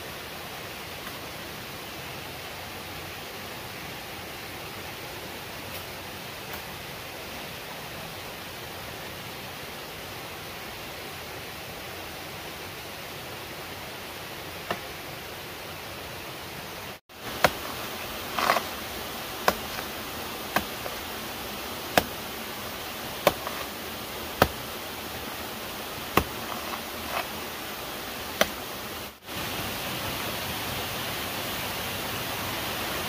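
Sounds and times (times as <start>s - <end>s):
background hiss: 0.0s - 33.0s.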